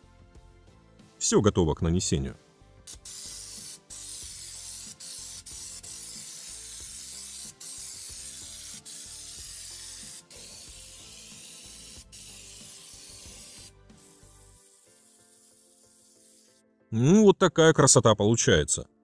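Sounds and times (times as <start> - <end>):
pneumatic spray gun hissing: 2.9 - 16.6.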